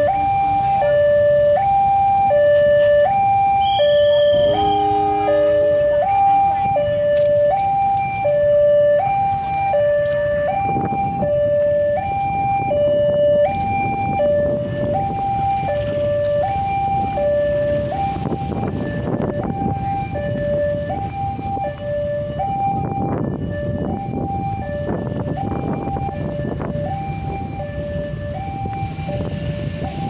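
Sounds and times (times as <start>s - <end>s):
two-tone crossing alarm: 0.0s - 30.0s
passing train rumble: 3.6s - 7.4s.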